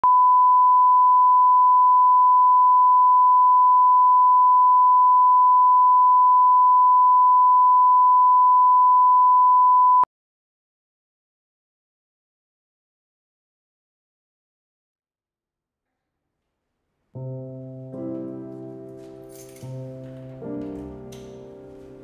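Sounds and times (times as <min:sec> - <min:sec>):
steady pure tone beep: 0:00.0 - 0:10.1.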